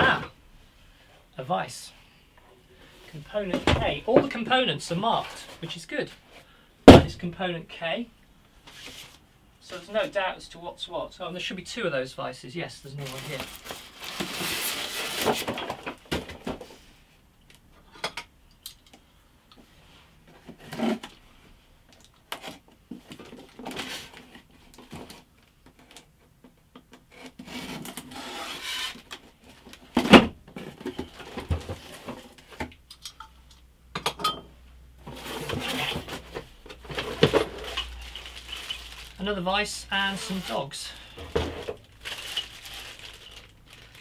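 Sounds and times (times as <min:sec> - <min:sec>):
cardboard scrapes and rustles: 0:13.0 - 0:15.6, 0:27.1 - 0:29.6, 0:35.0 - 0:39.2.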